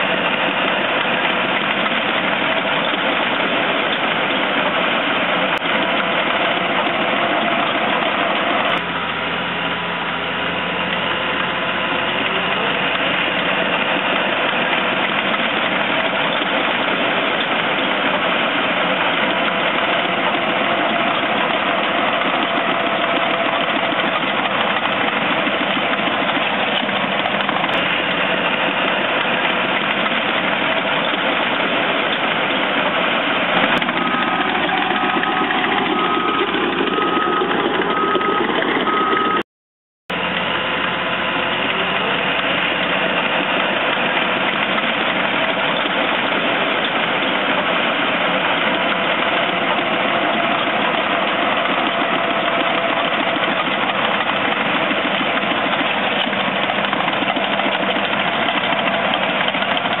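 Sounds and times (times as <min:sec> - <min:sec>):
diesel engine running: 0:00.0 - 0:39.5, 0:40.1 - 1:00.0
backup alarm beeping: 0:33.8 - 0:39.4.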